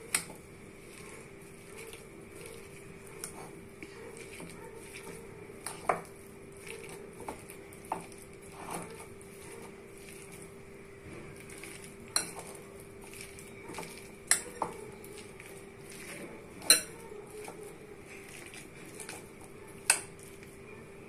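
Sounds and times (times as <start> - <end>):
metal spoon stirring mashed potato: 0.0 - 21.0
spoon clinking against glass: 16.6 - 17.0.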